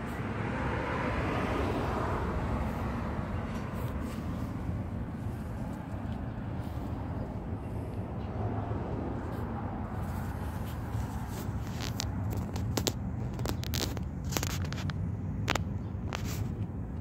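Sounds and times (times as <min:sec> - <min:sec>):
scratchy clicks and crackles: 0:10.1 - 0:17.0.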